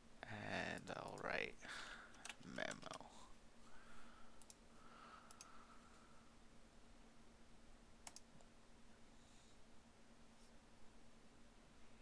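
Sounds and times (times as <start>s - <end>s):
low steady hum: 0.0s - 12.0s
faint mouse clicks: 4.4s - 4.6s, 5.3s - 5.6s, 8.0s - 8.5s.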